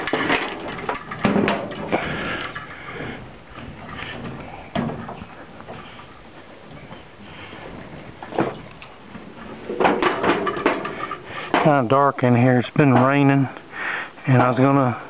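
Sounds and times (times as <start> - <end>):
handling clicks and knocks: 0.0 - 2.7, 3.6 - 11.9.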